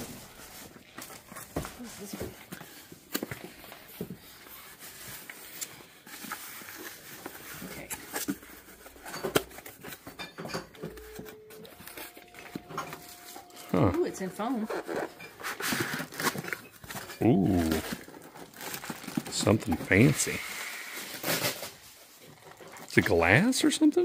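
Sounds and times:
cardboard packaging rustling: 0.0 - 24.0.

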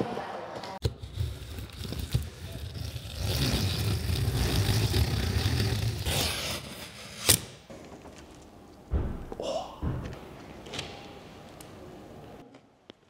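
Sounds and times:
utility knife slicing tape: 0.8 - 7.6.

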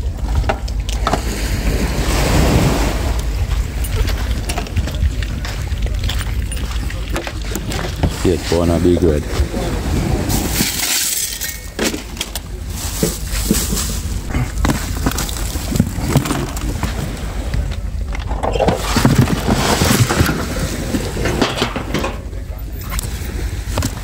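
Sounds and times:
steady low rumble: 0.0 - 24.0
knocks of fish being packed: 10.3 - 22.3
plastic rustling: 10.5 - 17.1.

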